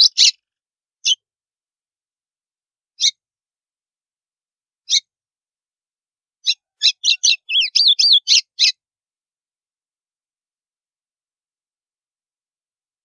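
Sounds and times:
bird singing: 6.4s - 8.8s.

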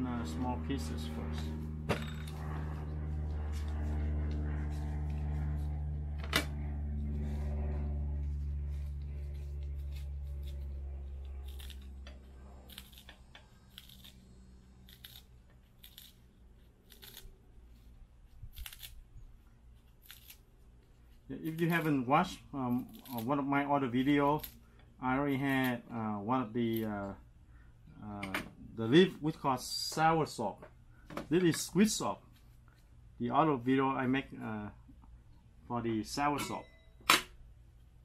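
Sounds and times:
low mechanical hum: 0.0s - 38.0s
scissors snipping leaves: 8.6s - 14.2s, 14.8s - 16.2s, 16.8s - 17.3s, 18.4s - 19.0s, 19.8s - 20.4s, 21.4s - 22.1s, 22.7s - 24.6s.

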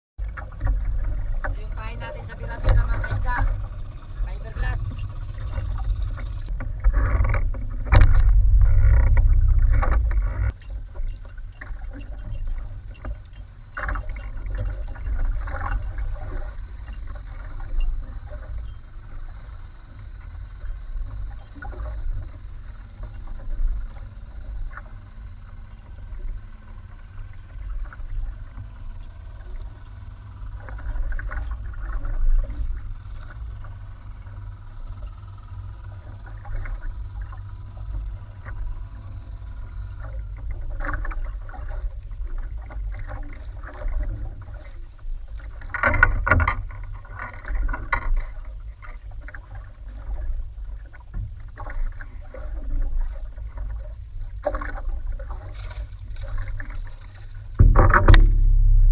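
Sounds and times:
water splashing against boat hull: 0.2s - 19.8s, 40.0s - 58.9s
wind rumble on microphone: 0.2s - 58.9s.

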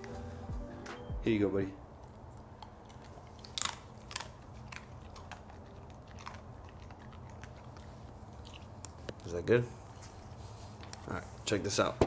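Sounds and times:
dog chewing crunches: 1.9s - 11.2s.

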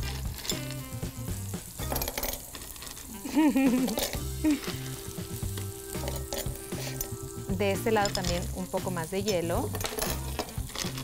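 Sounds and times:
background music with a beat: 0.0s - 2.1s, 3.3s - 11.0s
meat sizzling in a skillet: 0.0s - 11.0s.

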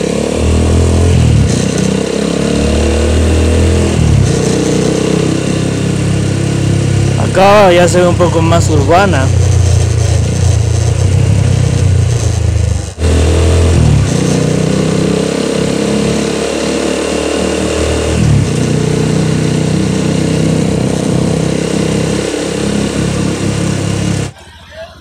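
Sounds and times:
motorcycle engine running: 0.0s - 24.5s.

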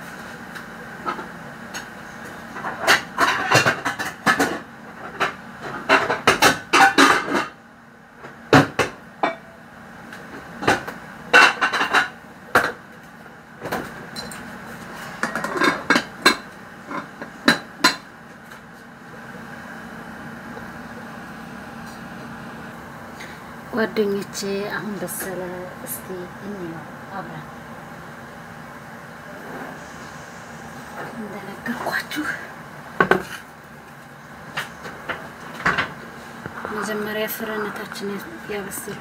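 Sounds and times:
steady low hum: 0.0s - 39.0s
pots and dishes clinking: 2.6s - 7.6s, 9.2s - 9.5s, 15.2s - 18.1s.

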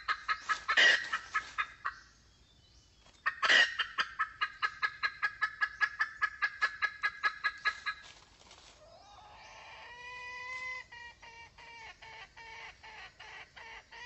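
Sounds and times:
drawn-out rising bird call: 0.0s - 2.0s
hen clucking rapidly: 0.0s - 2.0s, 3.2s - 8.1s.

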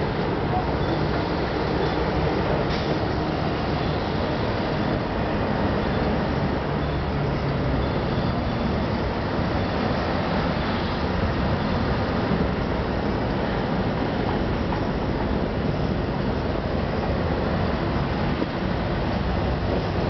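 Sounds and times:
city street traffic rumble: 0.0s - 20.0s.

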